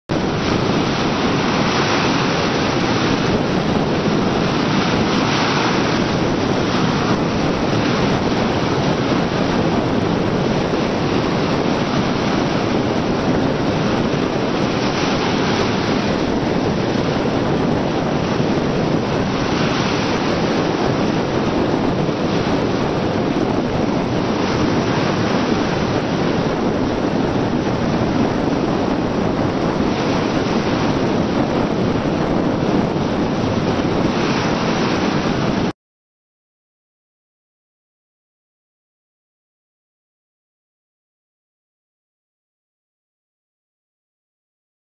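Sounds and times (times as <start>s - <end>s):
wind buffeting microphone: 0.1s - 35.7s
surf breaking on choppy sea: 0.1s - 35.8s.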